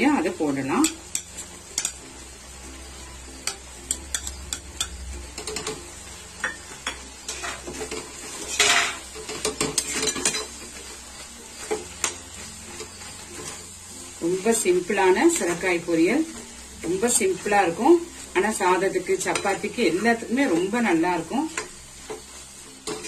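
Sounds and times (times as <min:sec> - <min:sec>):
metal spatula scraping a pan: 0:00.8 - 0:02.0, 0:03.4 - 0:14.0, 0:21.5 - 0:23.0.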